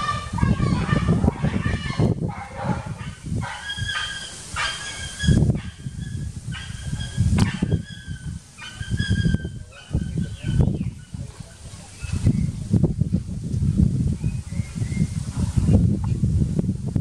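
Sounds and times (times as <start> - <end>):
young monkey crying: 0.0 - 2.2.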